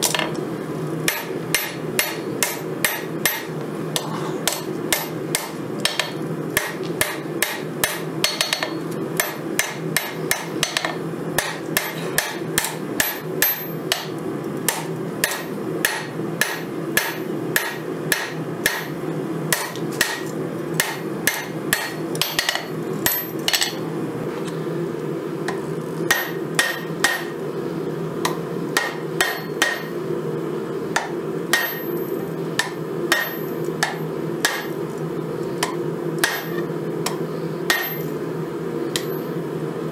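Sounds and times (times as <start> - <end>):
hammer striking steel on anvil: 1.1 - 3.5, 4.5 - 18.9, 19.5 - 23.8, 25.5 - 27.4, 28.2 - 30.0, 31.0 - 32.0, 32.6 - 34.8, 35.6 - 38.1, 38.9 - 39.3.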